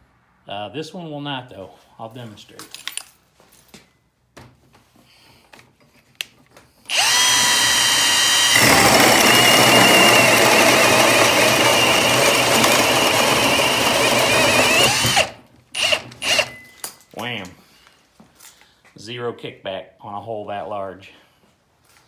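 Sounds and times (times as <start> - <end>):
drill hole saw cutting wood: 6.9 - 16.6.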